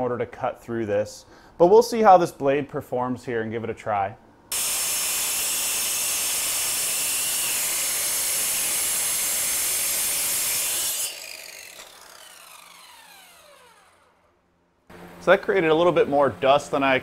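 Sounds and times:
circular saw grinding concrete: 4.5 - 14.2
saw blade winding down: 4.5 - 14.4.

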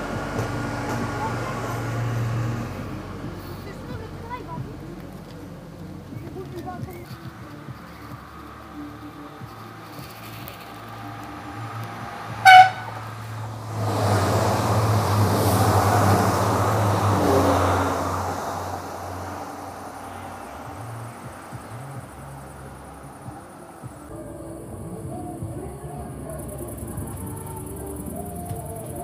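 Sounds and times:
train passing with wheel noise: 0.0 - 29.0
train horn toot: 12.4 - 13.0.

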